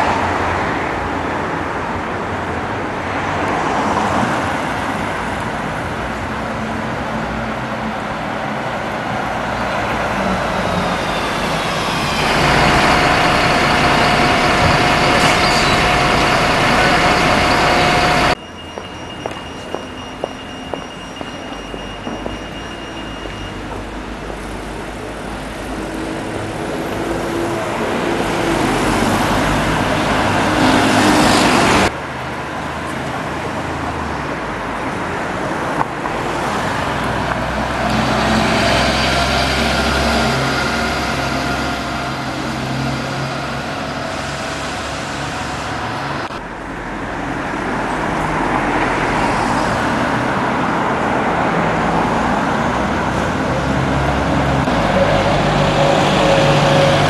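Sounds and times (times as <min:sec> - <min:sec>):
buses driving past: 0:00.0 - 0:57.0
general traffic: 0:00.0 - 0:57.0.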